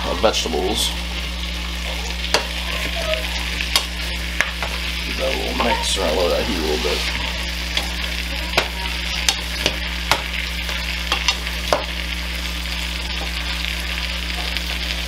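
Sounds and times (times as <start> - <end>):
vegetables sizzling in butter: 0.0 - 15.0
wooden spoon knocking pan: 8.5 - 10.3, 11.1 - 12.0.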